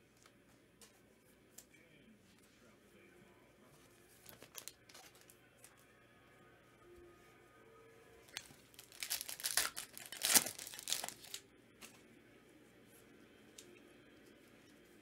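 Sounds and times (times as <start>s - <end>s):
wrapper tearing and crinkling: 4.2s - 5.3s, 8.3s - 11.4s.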